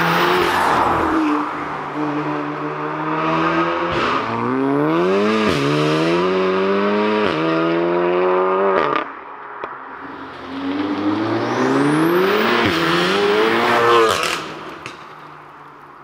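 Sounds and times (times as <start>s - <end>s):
car engine accelerating hard: 10.0s - 14.9s.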